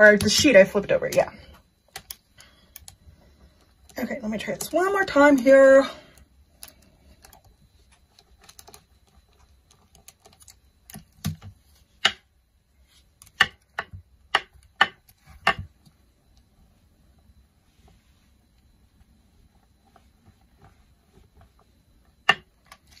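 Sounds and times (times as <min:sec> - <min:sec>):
sharp plastic clicks and knocks: 0:08.1 - 0:12.3, 0:13.2 - 0:15.9, 0:22.1 - 0:23.0
faint rubbing and ticks: 0:15.2 - 0:23.0.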